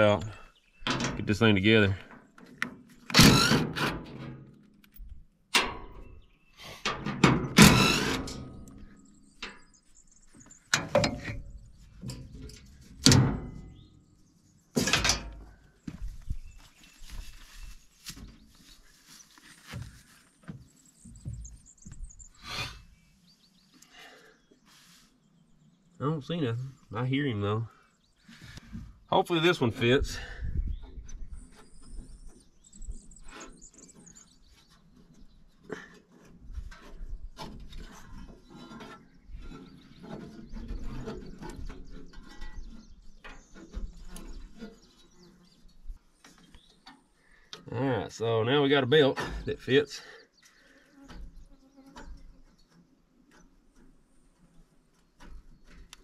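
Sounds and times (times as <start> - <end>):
small birds chirping: 0.0 - 2.6, 5.9 - 6.8, 8.5 - 14.8, 15.4 - 56.0
light knocks and rustling: 14.8 - 22.3.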